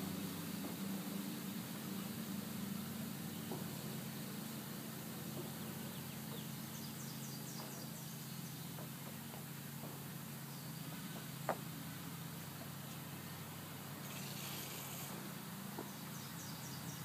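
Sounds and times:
even hiss: 0.0s - 17.0s
steady low hum: 0.0s - 17.0s
small bird chirping: 14.0s - 15.2s.

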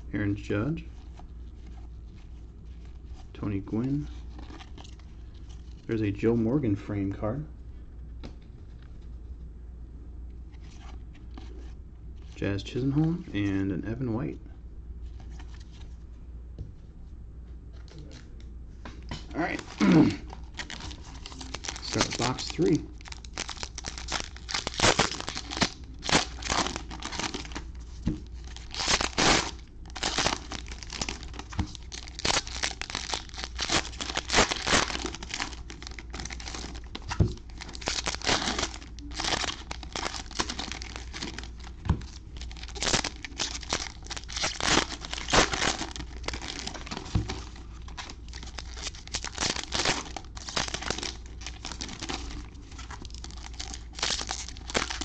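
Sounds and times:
foil wrappers tearing and crinkling: 19.4s - 55.0s.

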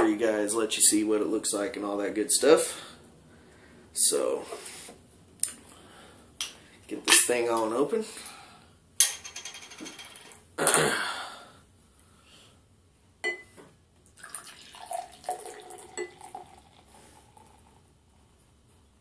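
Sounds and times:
beer glugging into glass: 14.2s - 17.6s.

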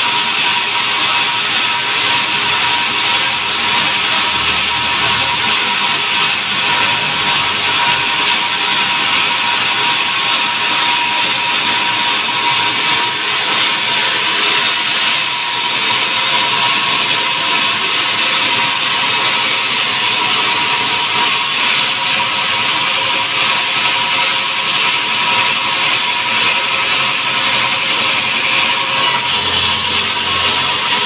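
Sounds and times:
band saw cutting log: 0.0s - 31.0s.

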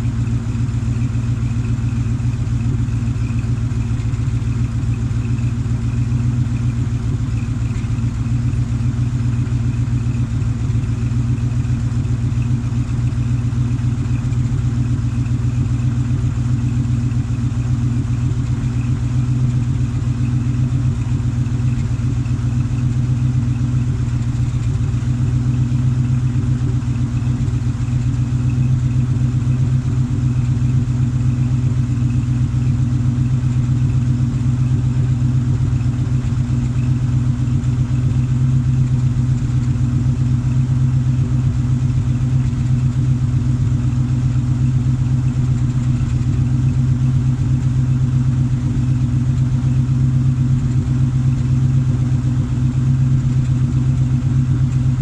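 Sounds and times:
engine idling: 0.0s - 55.0s.

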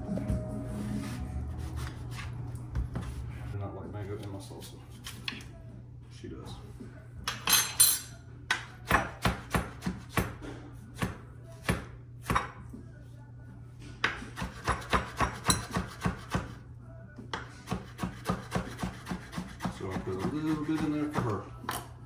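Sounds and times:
knife chopping on wooden board: 8.6s - 12.6s, 14.0s - 16.6s, 17.4s - 21.4s.

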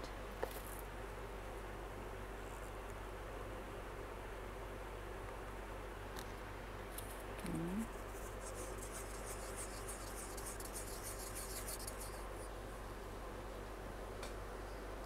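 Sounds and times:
steady low hum: 0.0s - 15.0s
stir stick scraping inside a cup: 8.0s - 12.3s.

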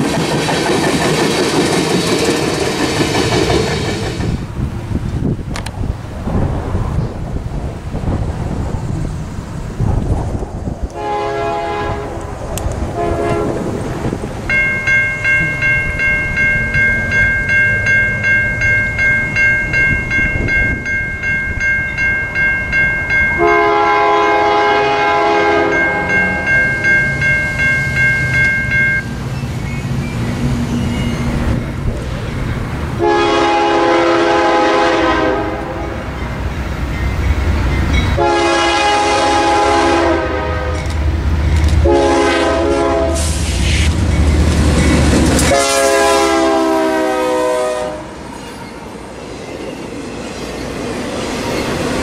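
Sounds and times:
rail traffic rumble: 0.0s - 52.0s
locomotive air horn blasts: 11.0s - 12.2s, 12.9s - 13.7s, 23.4s - 26.5s, 33.0s - 36.0s, 38.2s - 40.9s, 41.8s - 43.4s, 45.4s - 48.2s
crossing warning bell ringing: 14.4s - 43.1s, 44.0s - 50.7s.

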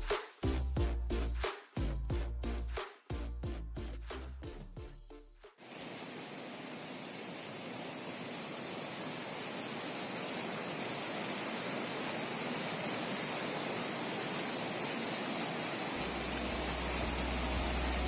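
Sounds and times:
stream rushing over boulders: 5.6s - 18.0s.

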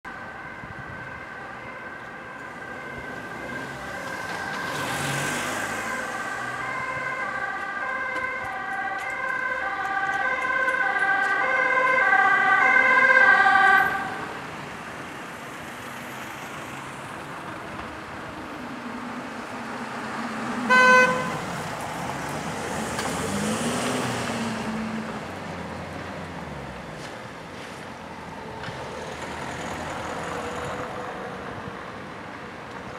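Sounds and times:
ambulance two-tone siren: 0.1s - 14.4s, 20.6s - 21.5s
traffic hum: 0.1s - 32.9s.

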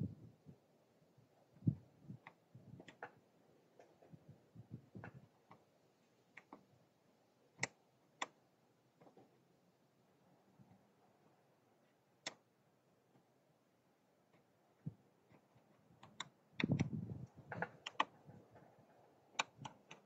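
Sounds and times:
key clicking and tapping in bolt: 17.5s - 18.1s.

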